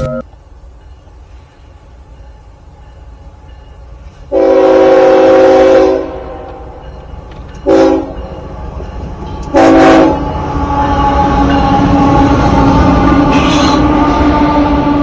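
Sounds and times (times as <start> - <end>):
train rumble: 0.0 - 15.0
locomotive air horn: 4.3 - 6.6, 7.6 - 8.2, 9.5 - 15.0.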